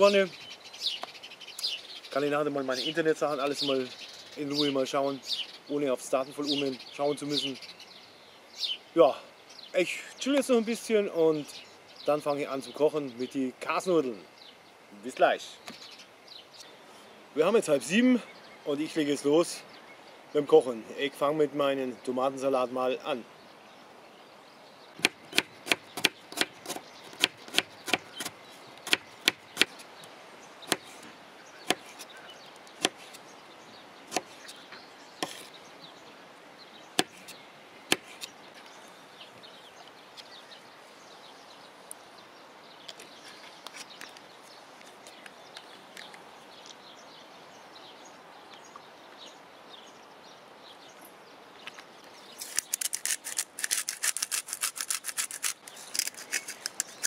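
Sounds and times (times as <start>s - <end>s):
spice grinder rasping: 52.4s - 57.0s.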